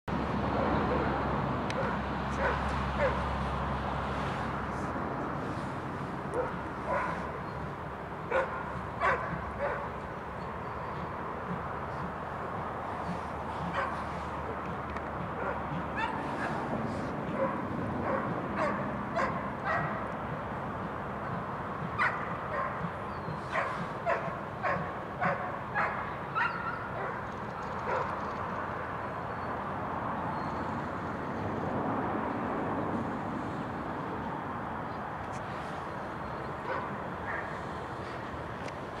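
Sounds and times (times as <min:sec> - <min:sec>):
dog barking: 0:01.8 - 0:03.2, 0:06.3 - 0:07.3, 0:08.3 - 0:09.9, 0:13.7 - 0:14.0, 0:15.4 - 0:16.6, 0:17.4 - 0:20.0, 0:22.0 - 0:22.8, 0:23.5 - 0:27.2, 0:27.8 - 0:28.2, 0:36.6 - 0:37.6.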